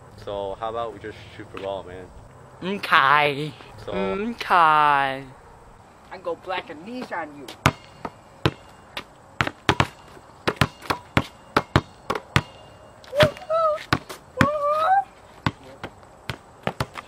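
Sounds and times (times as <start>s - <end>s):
ball striking backboard: 7.6s - 8.7s, 9.4s - 12.6s
basketball thuds: 7.6s - 14.6s, 16.3s - 17.0s
high wavering vocal cries: 13.1s - 15.2s.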